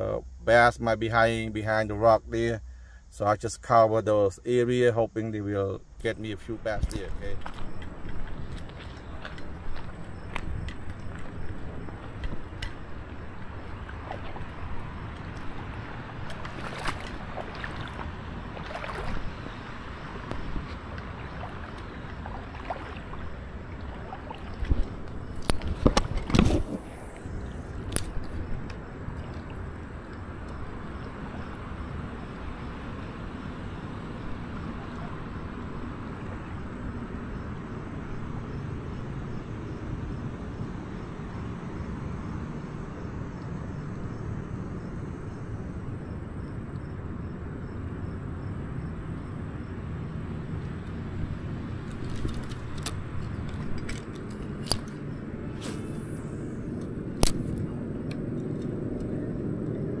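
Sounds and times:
low outdoor rumble: 0.0s - 60.0s
sharp clicks: 56.8s - 59.1s.

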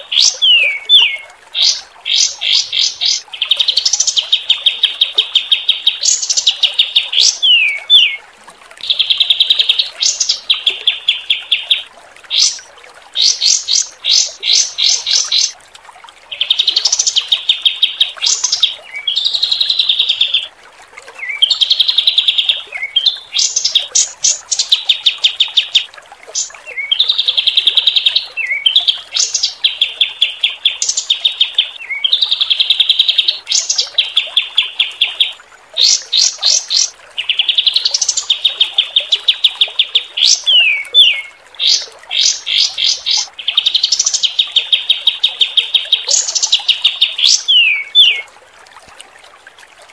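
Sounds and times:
faint flowing water: 0.0s - 49.9s
songbird fast trills: 21.2s - 48.3s.

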